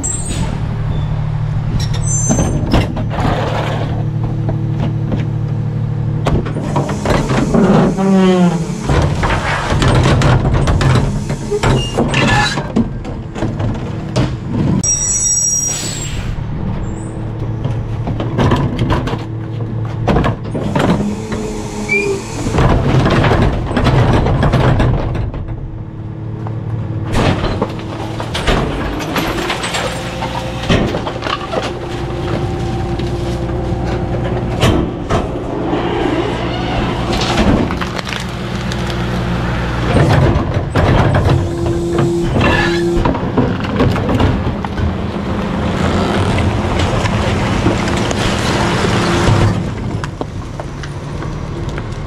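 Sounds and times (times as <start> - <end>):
high squeal: 0.0 - 2.7, 14.8 - 17.3, 21.1 - 22.6
garbage truck engine running: 0.0 - 52.0
packer crunching trash: 27.0 - 35.5, 36.8 - 50.4.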